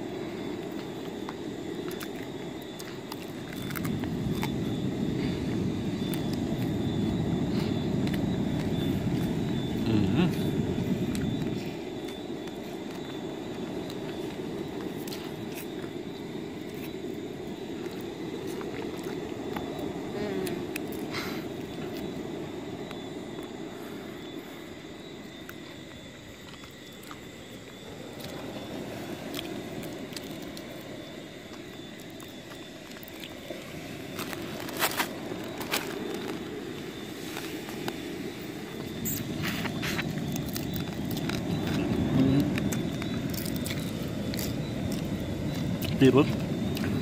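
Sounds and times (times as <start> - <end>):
low outdoor rumble: 0.0 - 47.0
sharp crackles and clicks: 25.4 - 38.0, 38.7 - 47.0.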